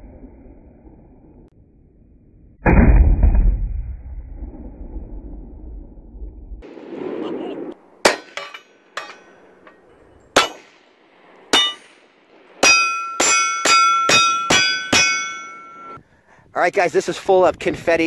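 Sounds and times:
bullets hitting steel targets: 8.0s - 10.8s, 11.5s - 16.0s.

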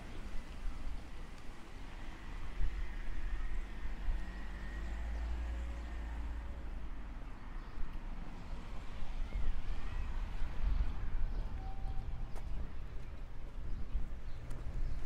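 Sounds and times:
low rumble of traffic: 0.0s - 15.0s
car driving away: 3.0s - 7.0s.

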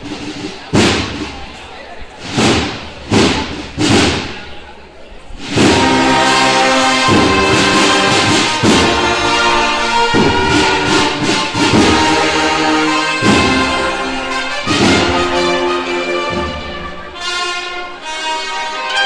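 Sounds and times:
heavy drum strikes: 0.0s - 1.6s, 2.2s - 4.6s, 5.4s - 16.7s
cornets playing sustained chords: 5.8s - 19.0s.

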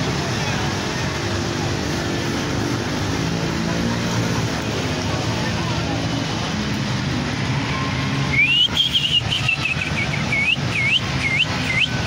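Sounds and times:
vehicle engine rumbling: 0.0s - 12.0s
swooping high whistles: 8.3s - 12.0s.

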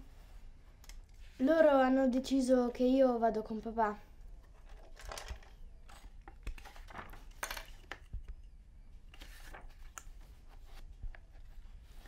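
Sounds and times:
paper rustling: 4.4s - 8.3s, 9.0s - 12.0s.

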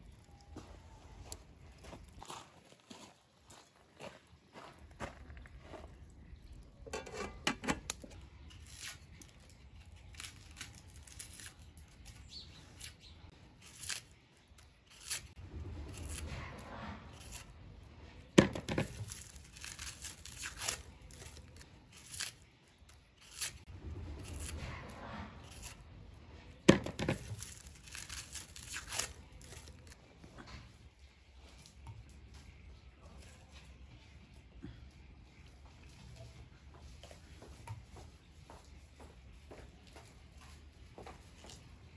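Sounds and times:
onion skins crackling and tearing: 6.4s - 25.9s, 26.5s - 30.0s.

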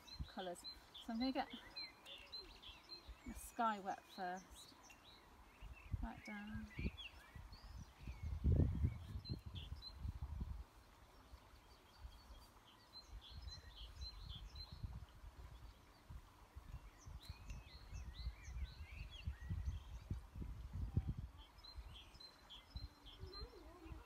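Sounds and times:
small birds chirping: 0.0s - 24.0s
wind on microphone: 5.6s - 12.4s, 13.0s - 24.0s.

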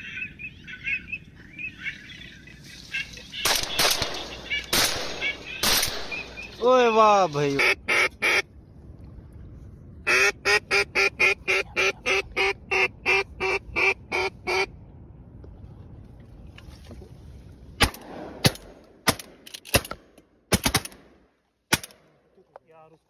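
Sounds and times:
ducks quacking: 0.0s - 6.6s, 7.5s - 8.4s, 10.1s - 14.7s
shotgun shots: 3.4s - 6.5s, 17.8s - 21.1s.

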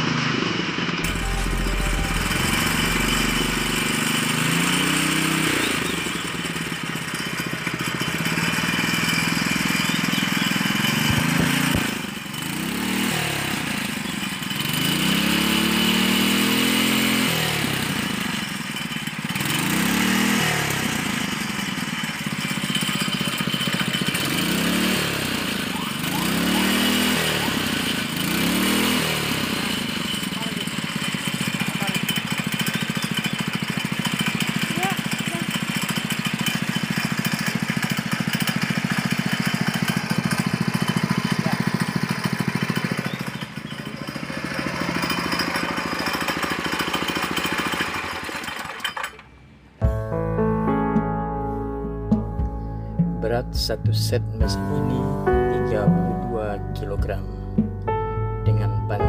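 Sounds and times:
boat engine revving: 1.0s - 18.4s, 19.3s - 48.8s.

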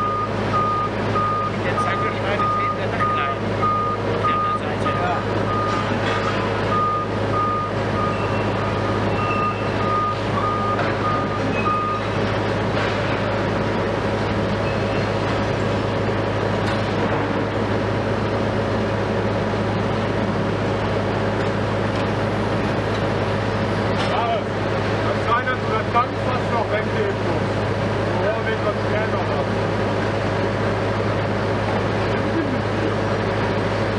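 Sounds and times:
reversing alarm beeping: 0.0s - 6.0s, 6.6s - 12.2s, 14.6s - 15.2s
heavy diesel machinery running: 0.0s - 33.9s.

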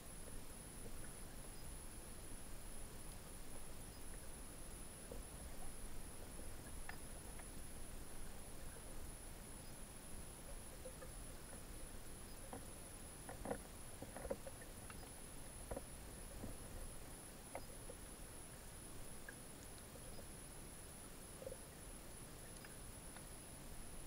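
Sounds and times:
faint high whine: 0.0s - 24.0s
underwater water rumble: 0.0s - 24.0s
soft clicks and knocks: 6.6s - 8.7s, 10.5s - 18.0s.

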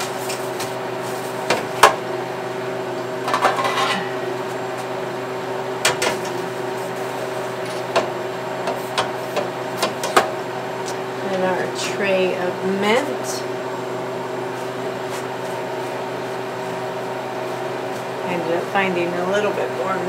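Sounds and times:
freeze dryer hum: 0.0s - 20.0s
metal trays clinking and scraping: 3.3s - 4.2s.

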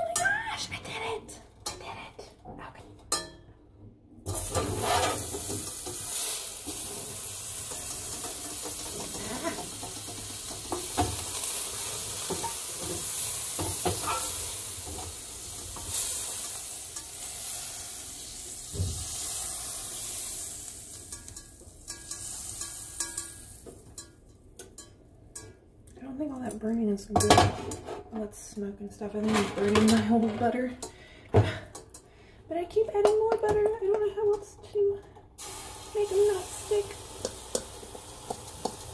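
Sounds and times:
spatula scraping a pan: 4.3s - 15.2s
butter sizzling in frying pan: 4.3s - 24.0s, 35.4s - 38.9s.

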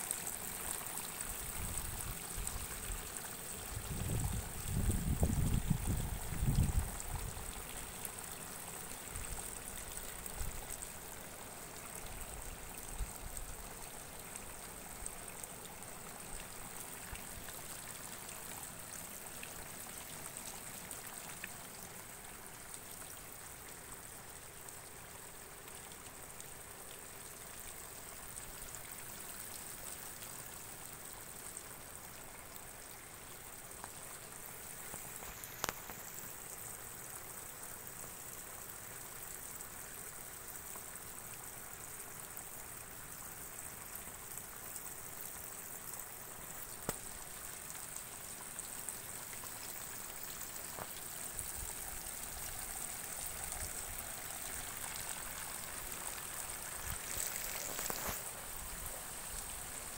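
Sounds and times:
outdoor background hiss: 0.0s - 59.9s
wind buffeting on microphone: 3.8s - 7.3s.

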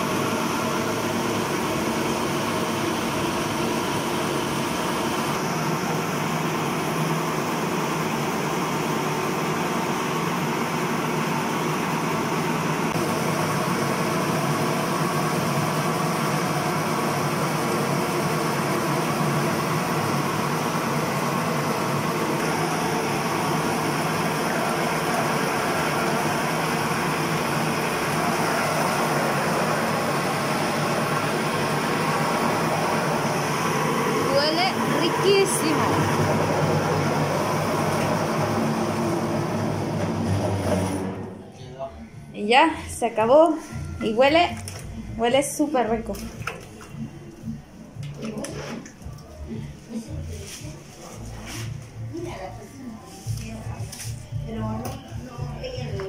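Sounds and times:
electric grinding mill running: 0.0s - 41.5s.

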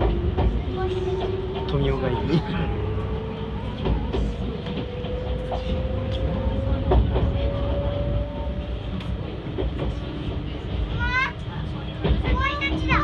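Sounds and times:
train running rumble: 0.0s - 13.0s
wheels knocking on track: 0.0s - 13.0s
rising electric motor tone: 1.0s - 8.7s.

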